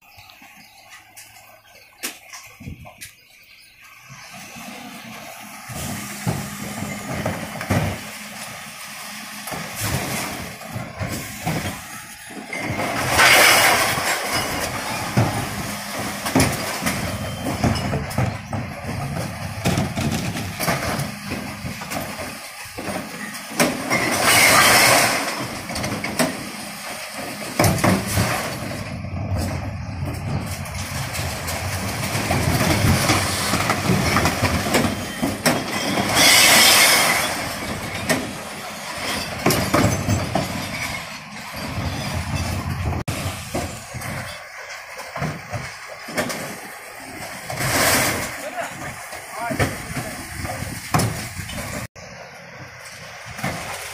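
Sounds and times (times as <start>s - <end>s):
refuse truck running: 0.0s - 53.9s
loads crashing into hopper: 4.2s - 53.9s
bins clattering against lifters: 9.4s - 51.9s.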